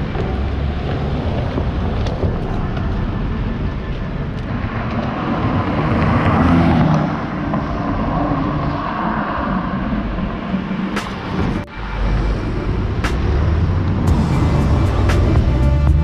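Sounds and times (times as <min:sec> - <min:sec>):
street traffic noise: 0:00.0 - 0:16.0
car passing close by: 0:04.7 - 0:16.0.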